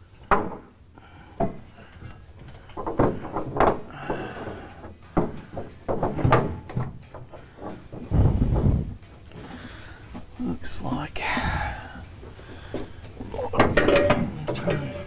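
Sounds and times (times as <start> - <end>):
metal plate clunking and scraping: 1.4 - 9.6, 13.4 - 15.0.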